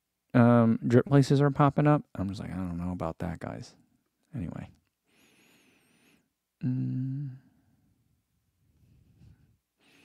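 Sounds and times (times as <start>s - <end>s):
man humming: 6.6s - 7.6s.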